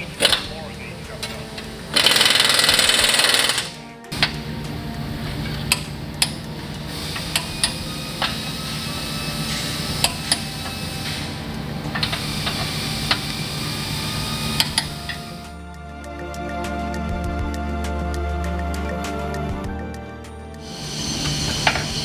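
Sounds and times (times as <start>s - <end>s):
steady low hum: 0.0s - 15.7s
hand ratchet clicking: 1.9s - 4.4s, 7.1s - 9.0s, 9.8s - 15.4s.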